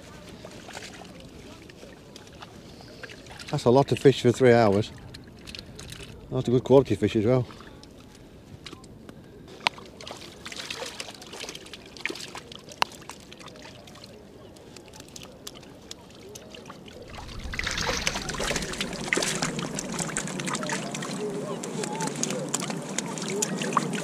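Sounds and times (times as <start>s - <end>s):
water splashing from net: 9.7s - 14.2s, 14.8s - 24.0s.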